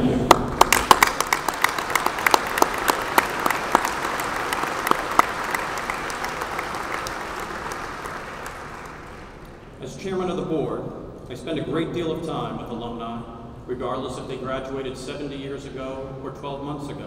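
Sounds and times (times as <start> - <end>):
audience applauding: 0.0 - 9.6.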